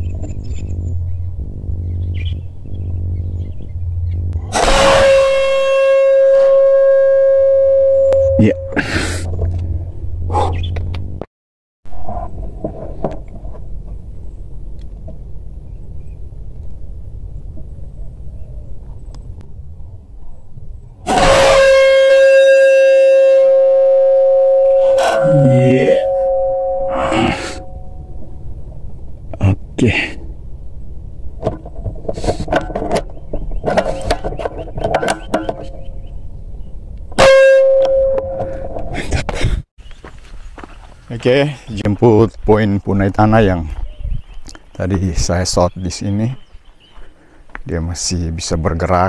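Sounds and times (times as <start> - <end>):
steady low rumble: 0.0 - 11.3, 11.9 - 21.7, 23.2 - 32.2.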